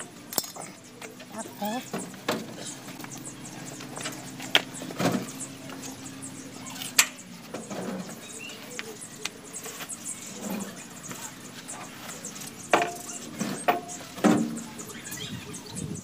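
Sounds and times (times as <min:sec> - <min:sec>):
metal clinks and knocks: 0:00.0 - 0:06.1.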